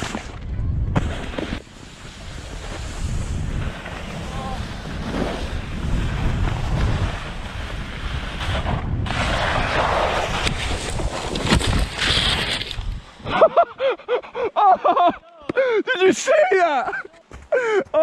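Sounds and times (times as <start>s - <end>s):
wind buffeting microphone: 0.0s - 1.1s, 1.8s - 12.1s.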